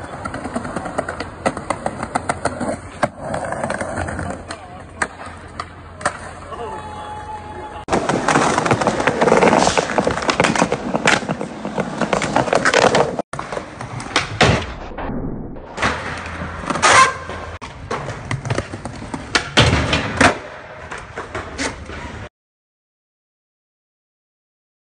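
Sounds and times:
skateboard clacking: 0.0s - 6.5s, 7.8s - 14.5s
skateboard wheels rolling on pavement: 0.0s - 14.7s, 15.8s - 22.3s.

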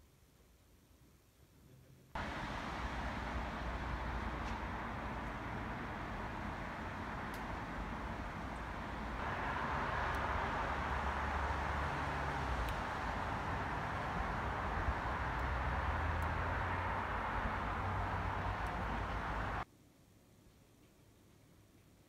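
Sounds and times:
constant hiss: 0.0s - 22.0s
low hum: 2.2s - 19.6s.

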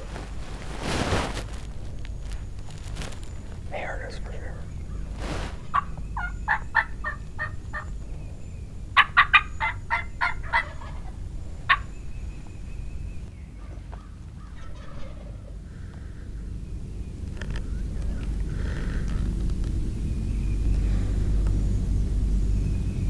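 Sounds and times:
turkey yelping: 4.8s - 15.7s.

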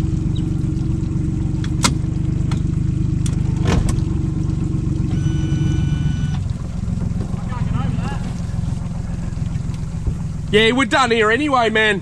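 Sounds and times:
outboard motor running: 0.0s - 12.0s
high beep: 5.1s - 6.4s.

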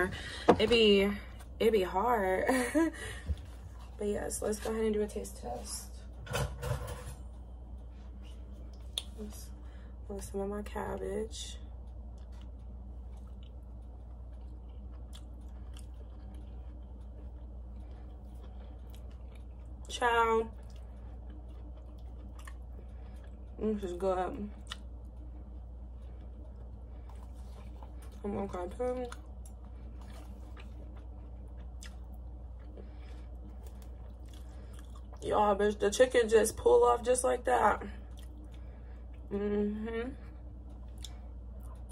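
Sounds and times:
low hum: 0.0s - 41.9s
person chewing: 12.0s - 19.9s, 20.5s - 23.6s, 24.5s - 35.2s, 38.1s - 39.3s, 40.5s - 41.9s.

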